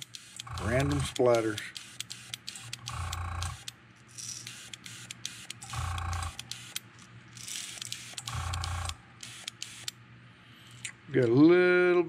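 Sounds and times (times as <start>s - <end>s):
sharp ticks: 0.0s - 3.8s, 4.5s - 6.8s, 7.8s - 10.0s.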